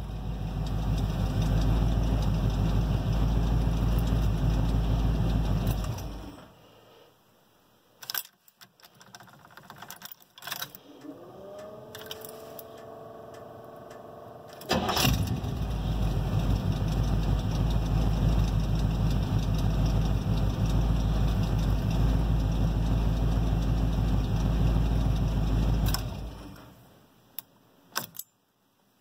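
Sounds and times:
car engine starting and running: 0:00.0 - 0:06.6, 0:10.8 - 0:26.9.

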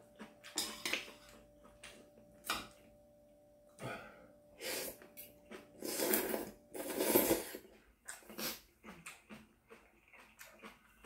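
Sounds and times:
person slurping noodles: 0:05.8 - 0:08.6.

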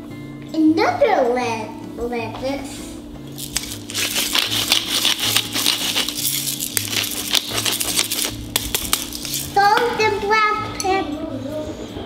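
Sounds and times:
faint background music: 0:00.0 - 0:12.0
spice mill grinding: 0:03.3 - 0:09.6.

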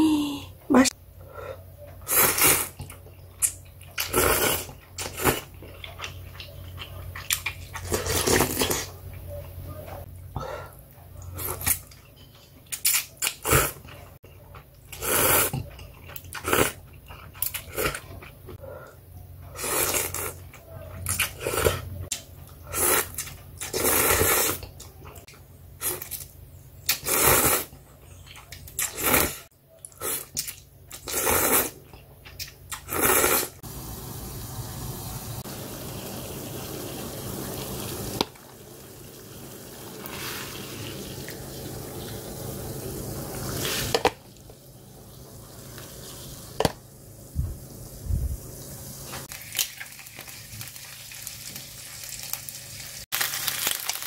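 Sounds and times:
slurping noodles: 0:02.0 - 0:02.9, 0:04.0 - 0:05.5, 0:07.7 - 0:08.9, 0:14.9 - 0:15.6, 0:16.3 - 0:16.8, 0:19.5 - 0:20.4, 0:21.1 - 0:21.9, 0:22.6 - 0:24.7, 0:26.9 - 0:27.7, 0:28.8 - 0:31.8, 0:32.7 - 0:33.6
water boiling in a pot: 0:32.9 - 0:54.0
squid cooking in a frying pan: 0:33.6 - 0:54.0.

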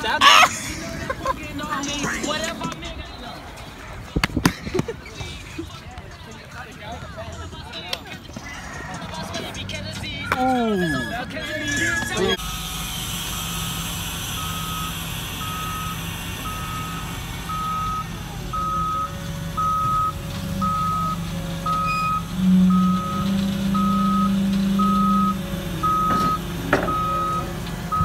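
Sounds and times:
backup alarm beeping: 0:14.3 - 0:28.0.

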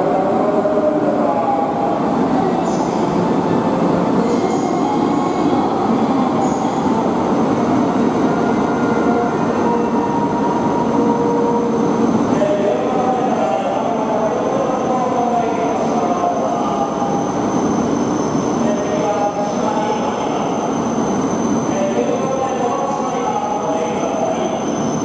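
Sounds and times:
train rumbling at platform: 0:00.0 - 0:25.0.

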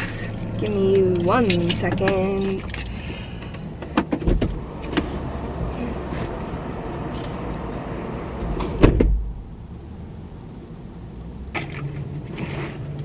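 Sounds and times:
outside noise: 0:00.0 - 0:13.0
car door shutting: 0:03.8 - 0:05.5, 0:08.4 - 0:09.3.

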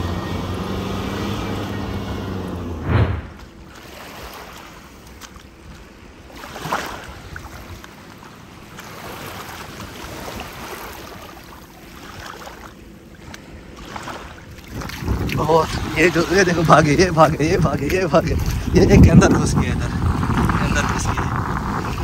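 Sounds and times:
small waves lapping: 0:00.0 - 0:22.0
wind on microphone: 0:14.6 - 0:22.0.

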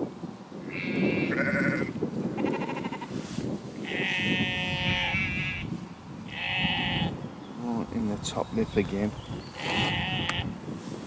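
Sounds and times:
wind on microphone: 0:00.0 - 0:11.0
sheep bleating: 0:00.7 - 0:03.1, 0:03.8 - 0:05.7, 0:06.3 - 0:07.2, 0:09.6 - 0:10.5.

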